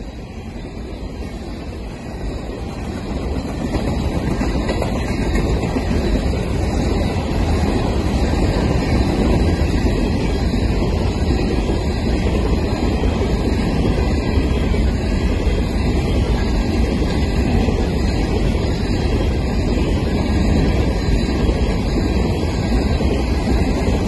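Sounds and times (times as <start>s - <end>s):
train cars rumbling on track: 0.0s - 24.0s
wind noise on microphone: 0.0s - 24.0s.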